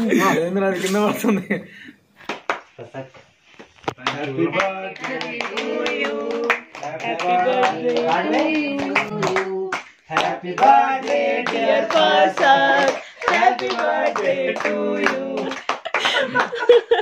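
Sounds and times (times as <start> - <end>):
hand clapping: 2.2 - 2.8, 3.6 - 16.7
group singing birthday song: 4.0 - 16.5.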